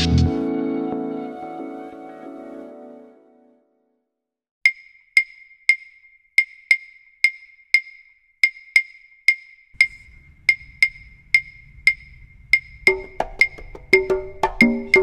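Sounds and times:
wood block percussion: 4.6 - 15.0.

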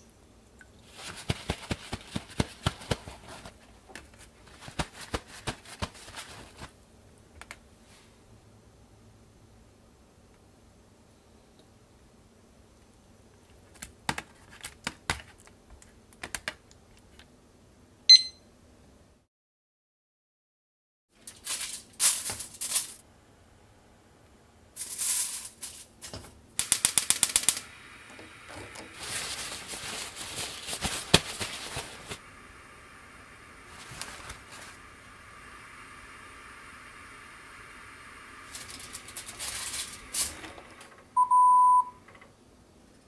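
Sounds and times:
aluminium foil crinkling: 0.9 - 6.8, 21.2 - 23.0, 24.8 - 27.7, 28.8 - 32.2, 33.7 - 34.8, 38.5 - 40.4
paper towels rustling: 0.9 - 6.8, 28.7 - 32.2, 33.6 - 34.9, 38.5 - 40.7.

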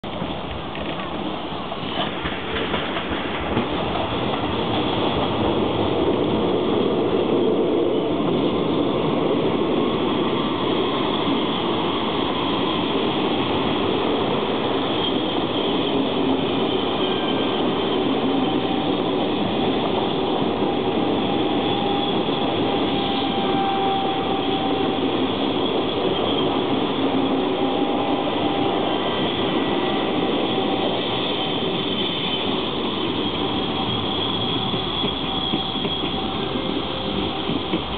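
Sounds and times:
train wheels rumbling on rails: 0.0 - 37.9.

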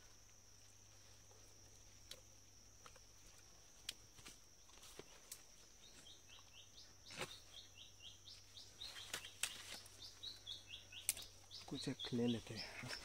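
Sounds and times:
high insect drone: 0.0 - 13.0
bird chirping: 5.7 - 13.0.

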